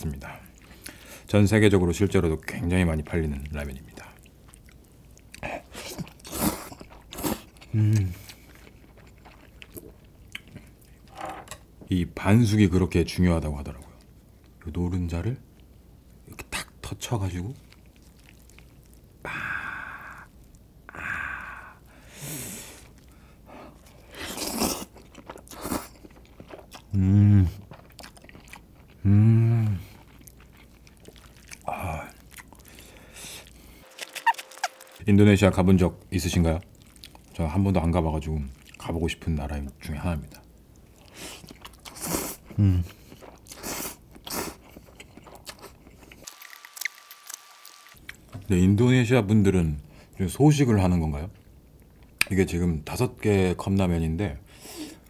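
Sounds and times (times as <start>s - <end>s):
chewing: 2.4s - 11.1s, 17.4s - 19.2s, 22.8s - 29.1s, 29.7s - 35.0s, 36.4s - 37.4s, 38.3s - 39.3s, 40.3s - 48.4s
breathy gasps: 19.2s - 20.3s
person slurping noodles: 24.0s - 25.9s.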